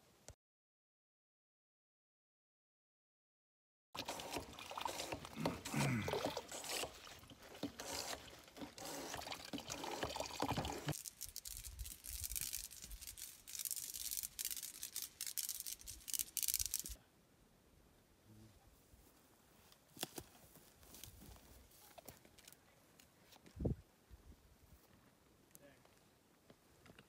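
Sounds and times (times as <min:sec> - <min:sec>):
water trickling and splashing: 0:04.0 - 0:16.9
hand pump water filter: 0:04.0 - 0:17.0
wind on microphone: 0:23.6 - 0:23.8.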